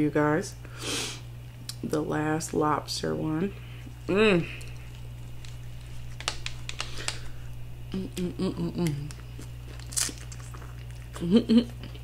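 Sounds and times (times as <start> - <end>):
tortilla clicks and crackles: 3.8 - 12.0
person humming: 4.1 - 4.8, 7.9 - 9.4
biting food: 8.1 - 12.0.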